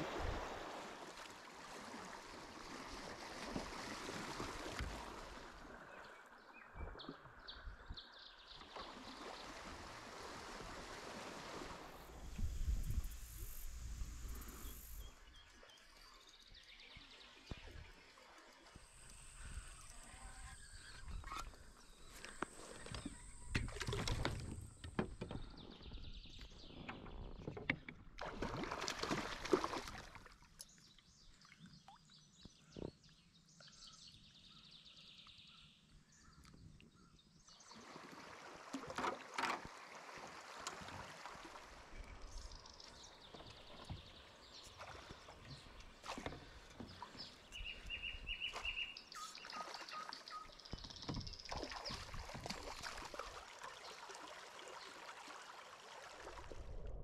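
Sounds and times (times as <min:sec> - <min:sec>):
fish splashing at water surface: 0:28.2 - 0:30.4
birds calling: 0:42.0 - 0:53.3.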